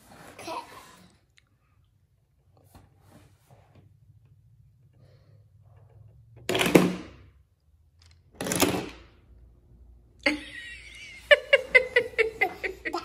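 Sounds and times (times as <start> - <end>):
children giggling: 10.3 - 13.0.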